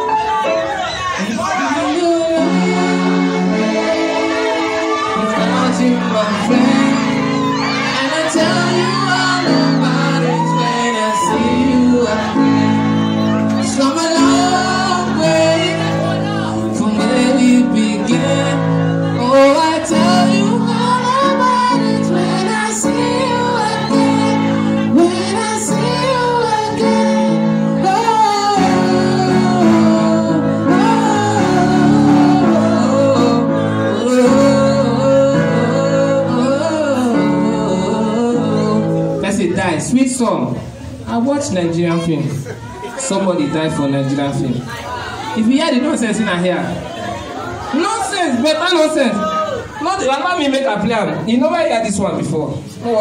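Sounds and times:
electronic keyboard chords: 0.0s - 39.7s
person singing: 1.2s - 39.2s.

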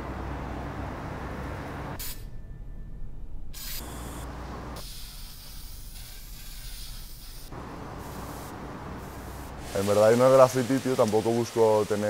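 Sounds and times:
spray paint can hissing: 3.6s - 3.9s, 4.8s - 12.0s.

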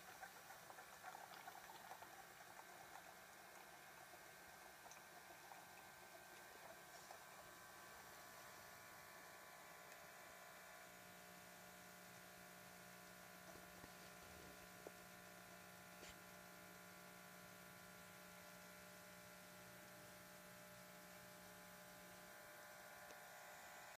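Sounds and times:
faint electrical hum: 0.0s - 23.9s.

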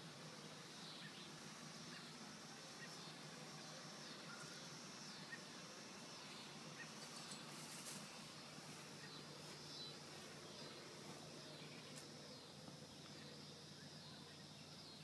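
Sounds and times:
soft rustles: 7.0s - 11.3s.

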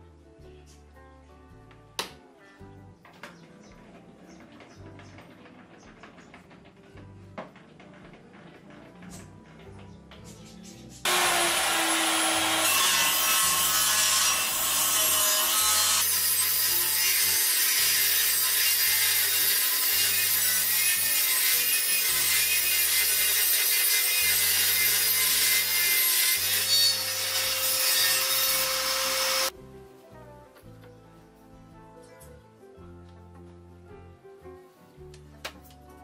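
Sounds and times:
table saw cutting wood: 11.1s - 29.5s.

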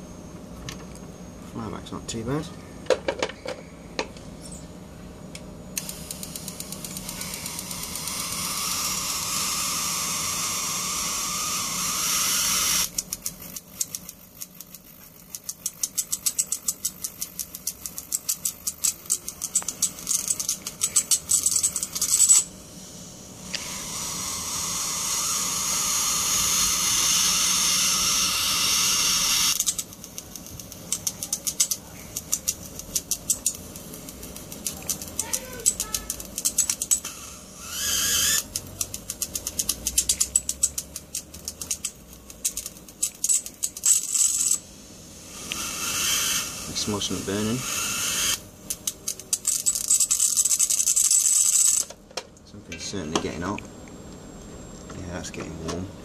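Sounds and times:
electric arc hissing and crackling: 18.9s - 51.9s.

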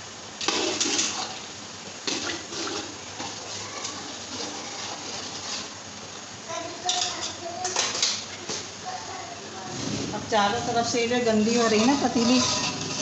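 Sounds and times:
water pouring into a pot: 0.4s - 5.8s.

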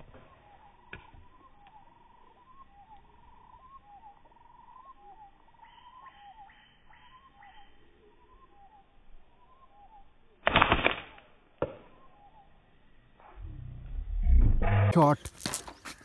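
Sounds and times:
small birds chirping and trilling: 0.2s - 10.4s.

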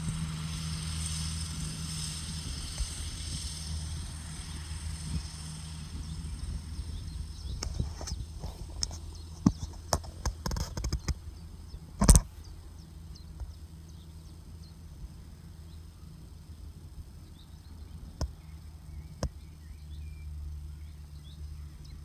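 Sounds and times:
distant tractor humming: 0.0s - 22.0s
sharp clicks and knocks: 7.6s - 11.2s, 12.0s - 12.4s.

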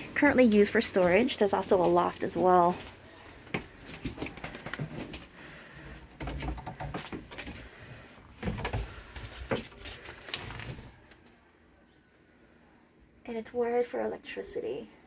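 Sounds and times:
footsteps on wooden stairs: 5.9s - 10.0s.

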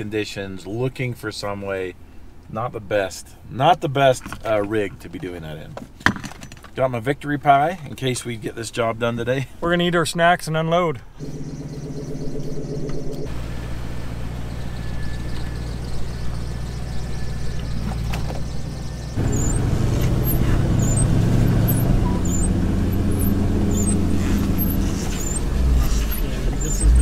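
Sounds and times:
vehicle engine running: 11.2s - 27.0s.

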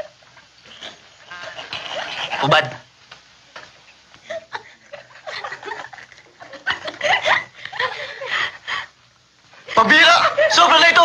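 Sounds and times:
men laughing: 1.3s - 2.7s, 4.2s - 8.9s, 9.6s - 10.8s.

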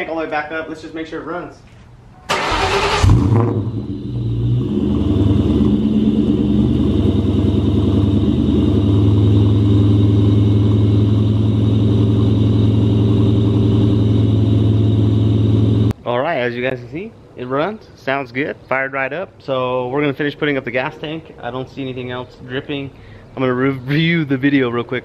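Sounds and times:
car engine idling: 2.3s - 15.9s.

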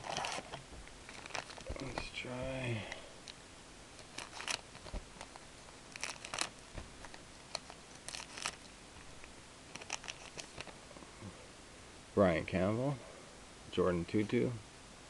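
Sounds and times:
foil wrapper crinkling: 0.0s - 2.2s, 4.0s - 10.8s.

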